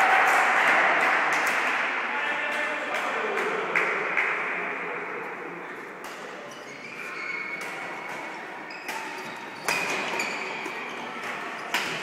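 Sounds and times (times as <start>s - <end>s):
murmur of voices: 0.0s - 12.0s
badminton rackets hitting shuttlecocks: 7.0s - 12.0s.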